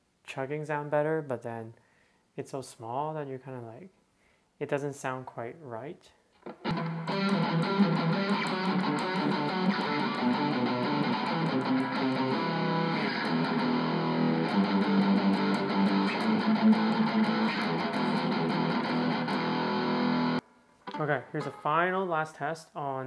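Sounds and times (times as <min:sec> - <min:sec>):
distorted electric guitar riffs: 0:06.4 - 0:22.0.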